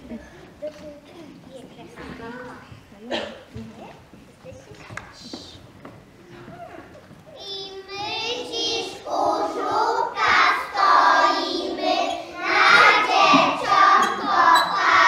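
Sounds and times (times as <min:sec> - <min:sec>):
children singing together: 0:07.4 - 0:15.0.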